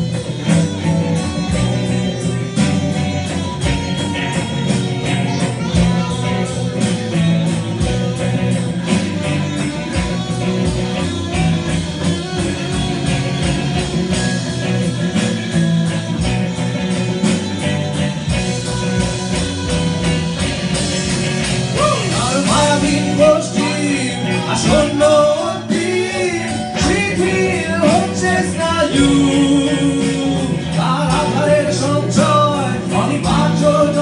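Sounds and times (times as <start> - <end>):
electric guitar strummed: 0.0 - 34.0
steady drum beat: 0.0 - 34.0
person singing: 21.7 - 34.0.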